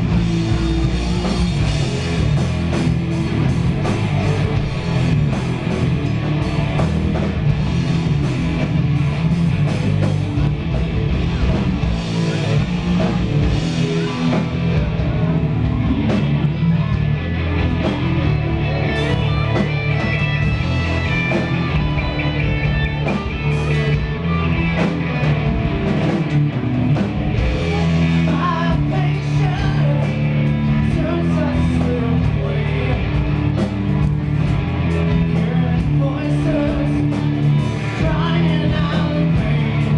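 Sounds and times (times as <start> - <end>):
bass guitar: 0.0 - 39.9
distorted electric guitars: 0.0 - 39.9
drum kit: 0.0 - 39.9
person singing: 27.4 - 33.2, 37.9 - 39.9.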